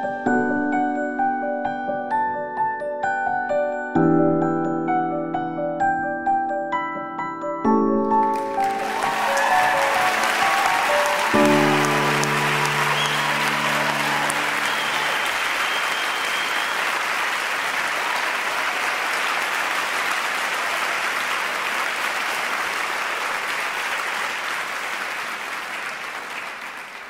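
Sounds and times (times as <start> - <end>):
audience applause: 8.2 - 27.0
orchestra held chord: 8.5 - 15.8.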